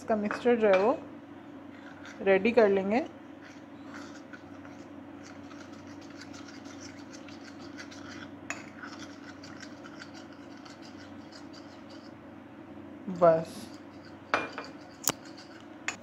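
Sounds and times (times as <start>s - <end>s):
steady low hum: 0.0s - 16.0s
metal spoon scraping ceramic bowl: 3.4s - 12.2s, 13.1s - 16.0s.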